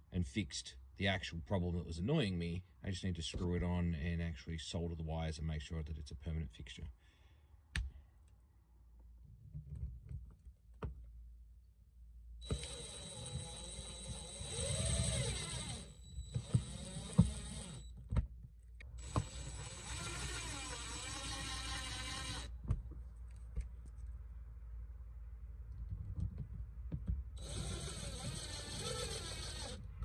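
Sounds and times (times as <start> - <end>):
screwdriver clicking and scraping screws: 12.4 - 17.9, 27.4 - 29.8.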